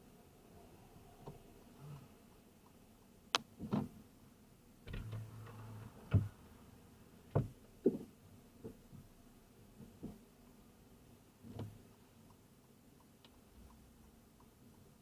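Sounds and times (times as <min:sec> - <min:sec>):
sharp clicks and knocks in car: 0:07.3 - 0:09.1, 0:11.4 - 0:12.4.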